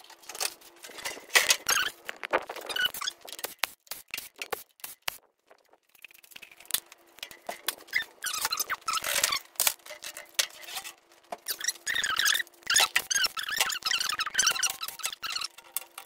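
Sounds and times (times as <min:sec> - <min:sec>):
high squeaky chirps: 0:01.6 - 0:03.3, 0:07.9 - 0:09.5, 0:11.4 - 0:15.6.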